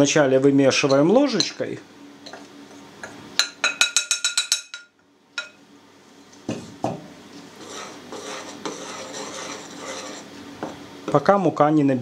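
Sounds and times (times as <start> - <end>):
spoon scraping while stirring: 7.5 - 10.4.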